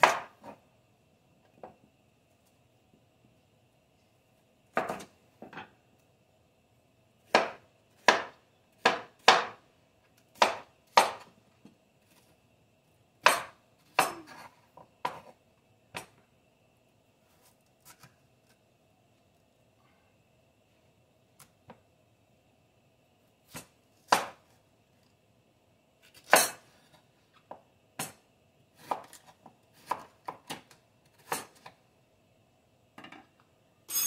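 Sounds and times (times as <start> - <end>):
knife chopping on wooden board: 0.0 - 0.6, 7.3 - 9.6, 10.4 - 11.3, 28.8 - 31.7.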